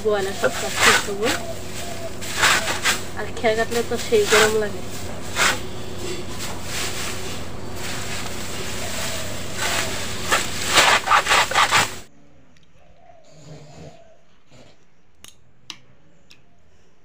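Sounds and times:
straw chopper chopping: 0.2s - 12.1s.

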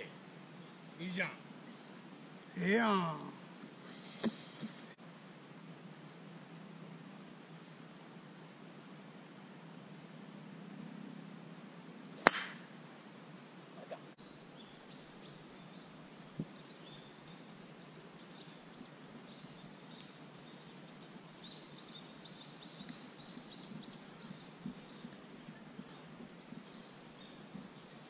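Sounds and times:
golf club striking ball: 12.2s - 12.7s
faint high chirping calls: 13.7s - 28.0s.

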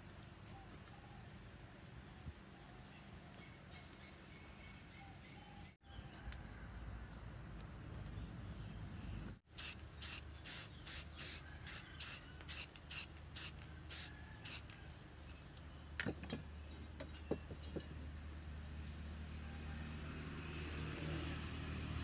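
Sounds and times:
spray paint can hissing: 9.5s - 14.7s.

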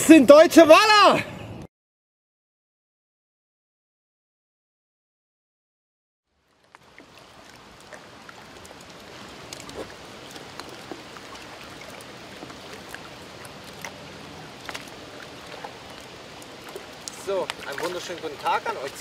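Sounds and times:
river water lapping at shore: 6.3s - 19.0s.

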